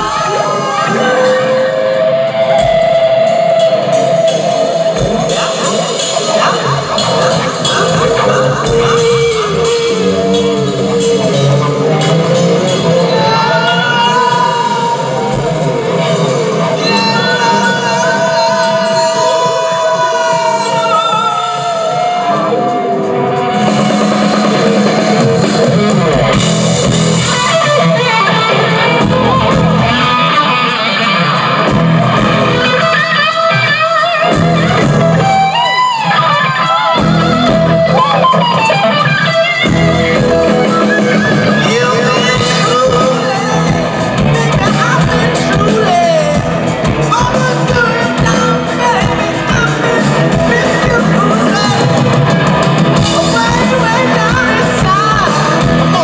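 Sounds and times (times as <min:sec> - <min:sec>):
electric guitar bending notes: 0:00.0 - 0:56.0
live rock band: 0:00.0 - 0:56.0.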